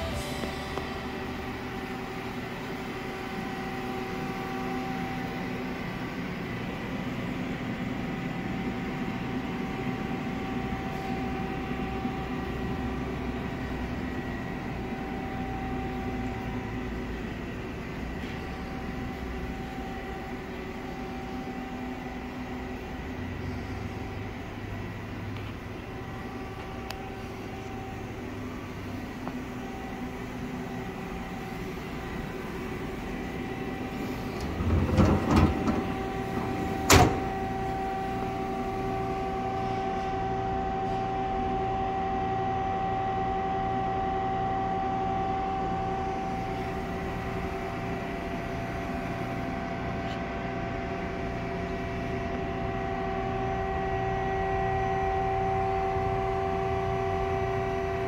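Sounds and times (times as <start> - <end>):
machine humming and whining: 0.0 - 58.0
door clunk: 34.4 - 37.4.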